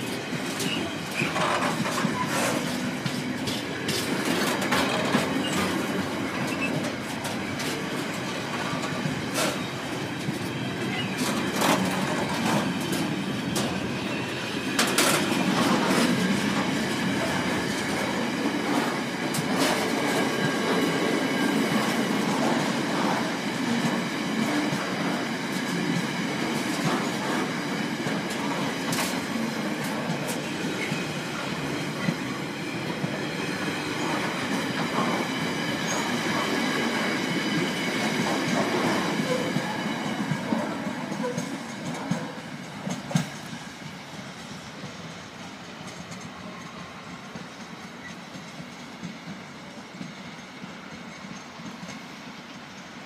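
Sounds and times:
freight train rolling past: 0:00.0 - 0:53.0.

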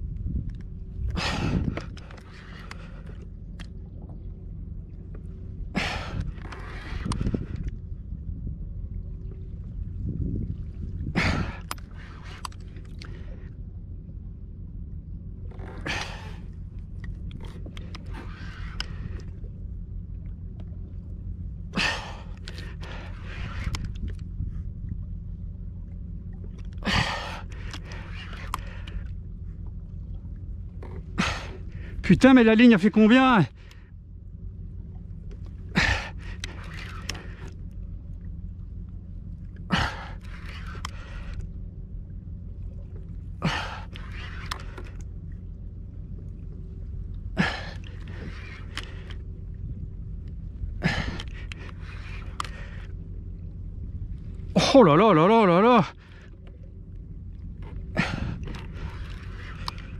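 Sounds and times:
wind rumble on microphone: 0:00.0 - 0:54.8, 0:55.8 - 0:59.9
light clicks: 0:06.1 - 0:07.8, 0:15.5 - 0:19.4, 0:26.3 - 0:29.7, 0:38.8 - 0:41.5, 0:50.1 - 0:53.2.

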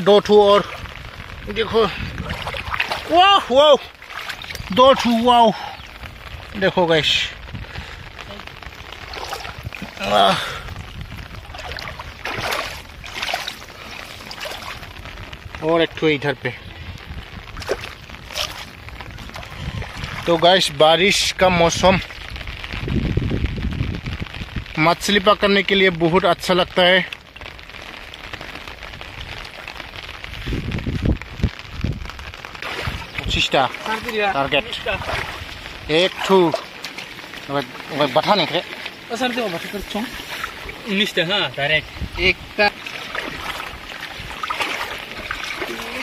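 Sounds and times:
water sloshing and splashing: 0:00.0 - 0:22.8, 0:27.1 - 0:46.0
man's voice: 0:04.6 - 0:05.6.

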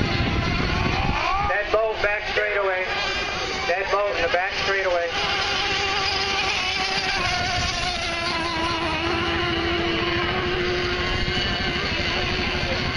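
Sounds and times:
model boat engine whining: 0:00.0 - 0:12.9.

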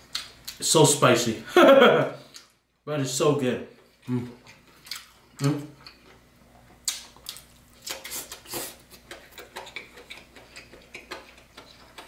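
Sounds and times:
wet chewing and mouth noises: 0:03.8 - 0:12.0.

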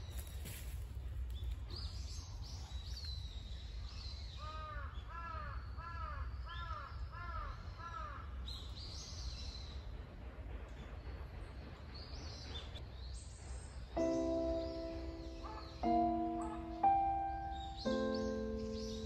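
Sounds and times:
small birds chirping: 0:10.7 - 0:19.0
crow cawing: 0:15.4 - 0:15.8.

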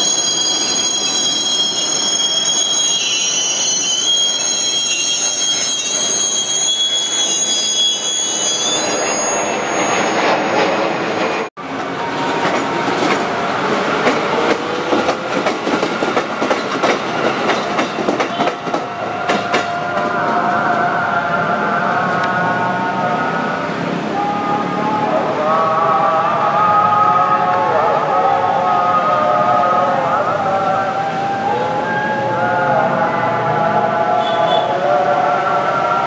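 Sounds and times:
two-pitched train tone: 0:00.0 - 0:10.3, 0:11.8 - 0:36.0
train wheel squeal: 0:00.0 - 0:10.8, 0:12.0 - 0:20.2
train wheels clacking on rails: 0:11.6 - 0:20.4.

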